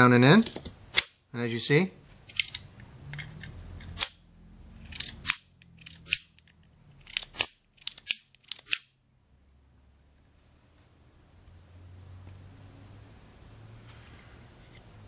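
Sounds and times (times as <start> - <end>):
small pistol parts clicking: 2.2 - 4.2, 4.8 - 9.0.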